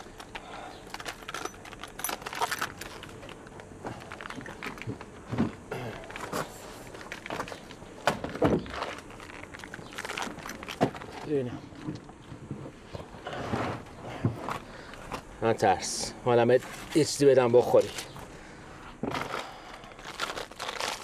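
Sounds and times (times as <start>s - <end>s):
plastic wrapper crinkling: 0.0s - 5.1s, 6.1s - 11.2s, 19.3s - 21.0s.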